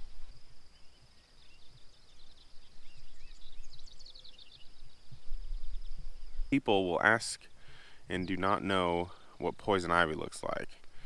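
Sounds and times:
birds singing: 0:00.0 - 0:11.0
steady high-pitched hiss: 0:00.0 - 0:11.0.

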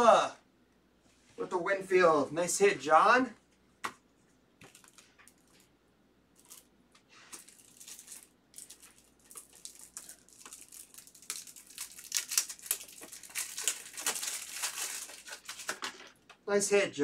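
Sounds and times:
foil pack crinkling and tearing: 0:04.6 - 0:05.6, 0:06.4 - 0:06.7, 0:07.3 - 0:16.3.

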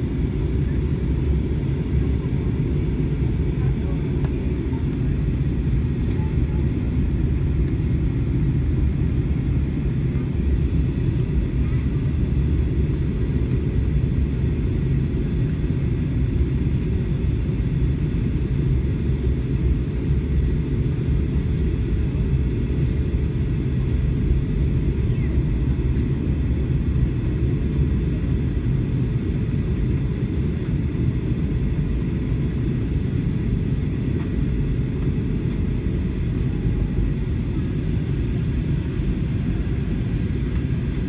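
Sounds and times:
airliner cabin rumble: 0:00.0 - 0:41.0.

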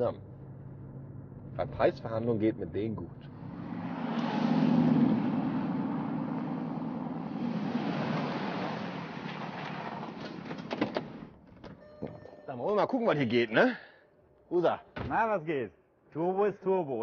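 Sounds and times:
suv engine driving past: 0:03.2 - 0:10.6.

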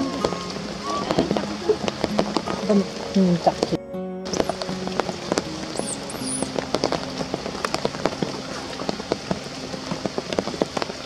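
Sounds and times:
rain on stone and leaves: 0:00.0 - 0:11.0.

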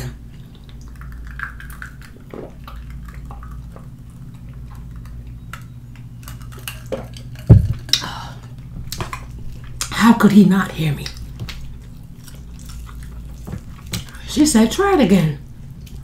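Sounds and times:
drink being sipped: 0:02.1 - 0:02.8.

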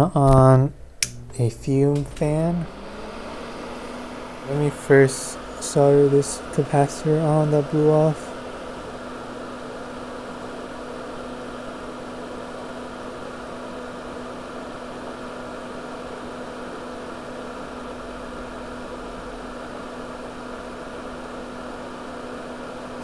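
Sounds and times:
low hum: 0:00.0 - 0:11.8
extractor fan whirring: 0:00.0 - 0:23.0.

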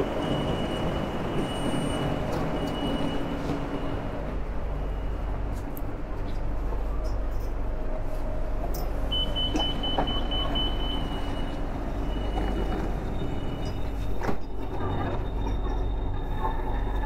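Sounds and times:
low hum of train: 0:00.0 - 0:17.0
door-closing warning beep: 0:00.2 - 0:04.1, 0:09.1 - 0:16.2.

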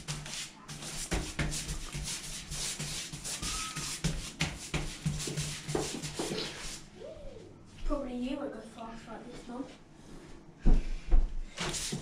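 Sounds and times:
brush swishing over wet paper: 0:00.0 - 0:06.9, 0:11.6 - 0:12.0.

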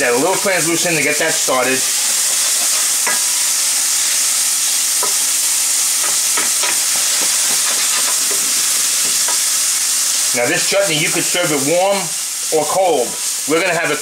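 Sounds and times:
vegetables sizzling in oil: 0:00.0 - 0:14.0
wooden spoon scraping a pan: 0:02.1 - 0:03.3, 0:06.0 - 0:09.4.

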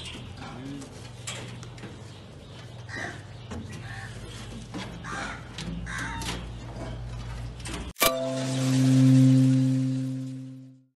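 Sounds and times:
crows cawing: 0:05.0 - 0:06.3.

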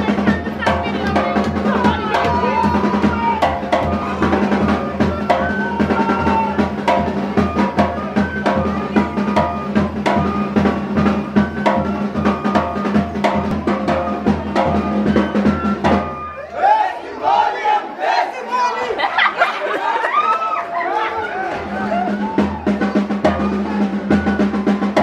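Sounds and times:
drum-led dance music: 0:00.0 - 0:14.8
bass drum and snare beats: 0:00.0 - 0:16.3, 0:21.6 - 0:25.0
high melody of held notes: 0:00.0 - 0:16.6.

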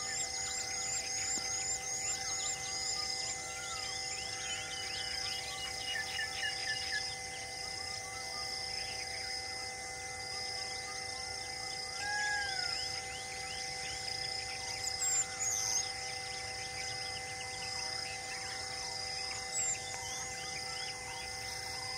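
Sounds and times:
birds chirping and calling: 0:00.0 - 0:07.2, 0:12.0 - 0:21.9
high insect buzz: 0:00.0 - 0:21.9.

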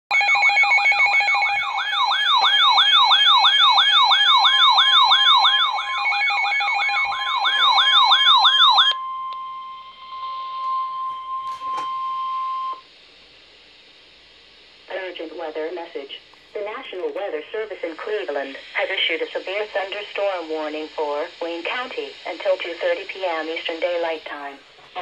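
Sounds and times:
siren-like sweeping tone: 0:00.1 - 0:12.6
steady beeping tones: 0:00.2 - 0:12.8.

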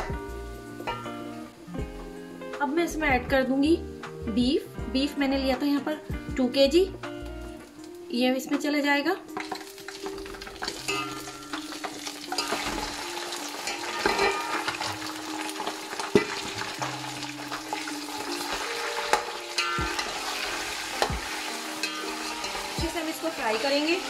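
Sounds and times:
meat sizzling in hot oil: 0:07.1 - 0:24.0
steel ladle clinking against pot: 0:10.6 - 0:13.0, 0:13.6 - 0:15.1.

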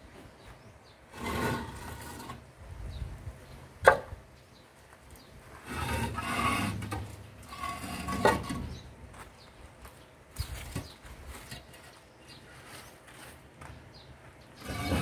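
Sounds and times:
concrete blocks scraping: 0:01.1 - 0:02.5, 0:05.5 - 0:09.0, 0:10.4 - 0:13.4, 0:14.6 - 0:15.0.

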